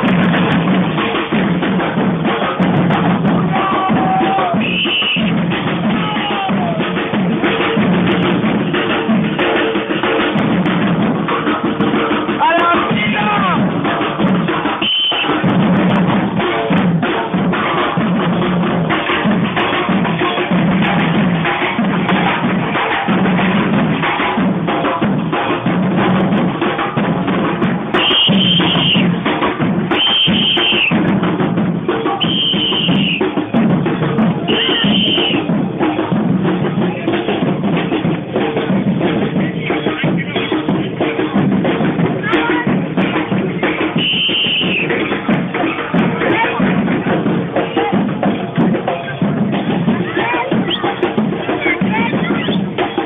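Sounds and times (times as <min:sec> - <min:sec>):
bass drum beat: 0:00.0 - 0:53.0
street drums beating: 0:00.0 - 0:53.0
shrill whistle blasts: 0:04.6 - 0:05.4, 0:14.8 - 0:15.4, 0:28.0 - 0:29.1, 0:29.9 - 0:31.0, 0:32.2 - 0:33.3, 0:34.5 - 0:35.4, 0:44.0 - 0:45.0.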